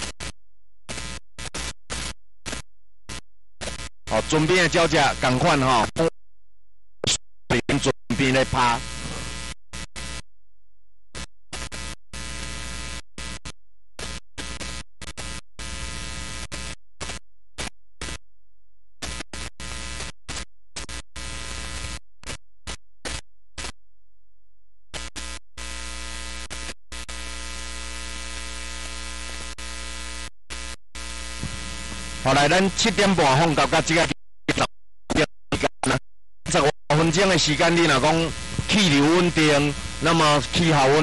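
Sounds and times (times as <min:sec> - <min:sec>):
electrical mains hum: 0:31.0 - 0:41.0.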